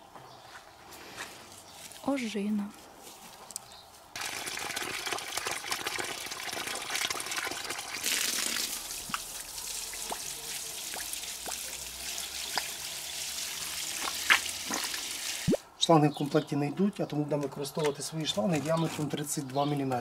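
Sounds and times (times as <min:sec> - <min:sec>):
water dripping: 0:04.2 - 0:15.6
water from garden hose splashing: 0:04.2 - 0:15.6.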